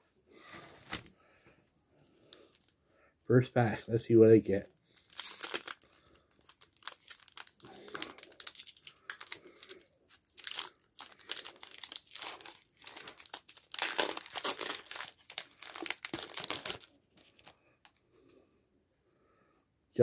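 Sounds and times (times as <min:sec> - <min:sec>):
foil wrapper tearing and crinkling: 0:04.9 - 0:17.6.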